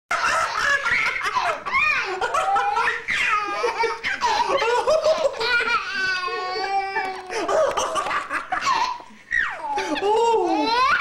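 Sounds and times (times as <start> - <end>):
baby laughing: 0.1 - 11.0.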